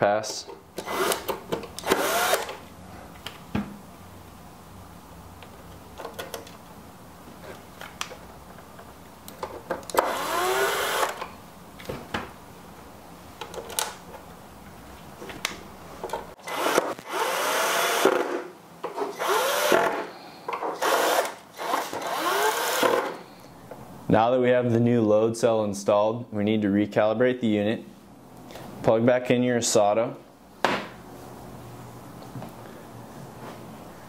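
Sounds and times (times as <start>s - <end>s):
electric screwdriver whining: 0.8s - 2.6s, 9.9s - 11.2s, 16.4s - 18.4s, 19.1s - 20.1s, 20.8s - 23.2s.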